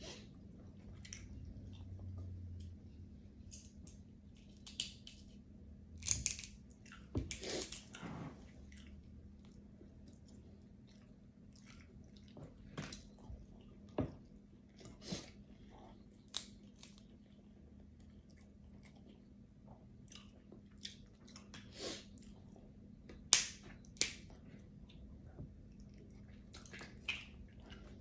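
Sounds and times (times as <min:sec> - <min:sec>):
faint low hum: 0:00.0 - 0:28.0
crab shells cracking: 0:06.0 - 0:06.6
close-up chewing: 0:06.1 - 0:08.0, 0:08.6 - 0:14.0, 0:14.6 - 0:22.7.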